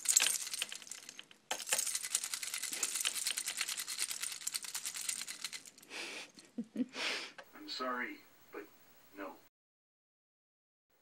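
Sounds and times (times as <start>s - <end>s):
keys jingling: 0.0s - 5.9s.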